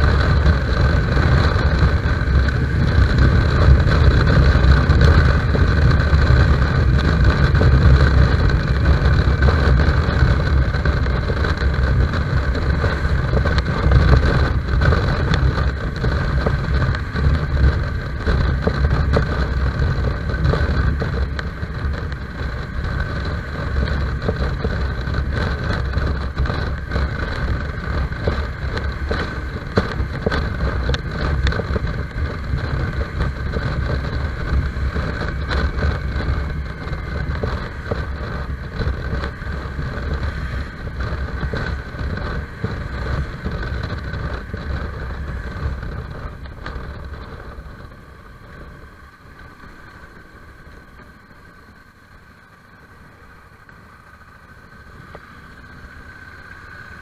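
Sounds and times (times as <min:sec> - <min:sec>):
motorcycle engine running: 0:00.0 - 0:57.0
wind rush on microphone: 0:00.0 - 0:57.0.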